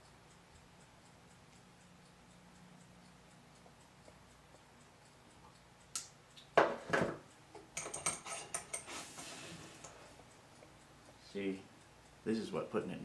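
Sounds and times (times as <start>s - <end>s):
faint regular ticking: 0.0s - 6.6s, 7.2s - 8.9s, 9.7s - 13.0s
sharp click: 5.9s - 6.5s.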